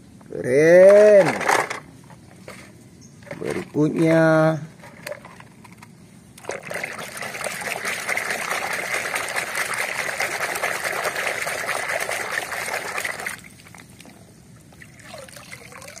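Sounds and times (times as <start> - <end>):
hand scrubbing toy underwater: 6.4 - 14.0
water dripping and trickling: 6.4 - 16.0
water sloshing in plastic basin: 6.4 - 16.0.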